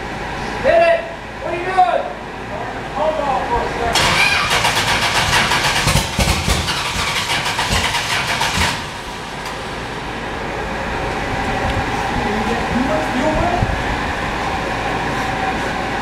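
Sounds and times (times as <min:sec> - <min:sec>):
engine revving and idling: 0:04.0 - 0:12.9.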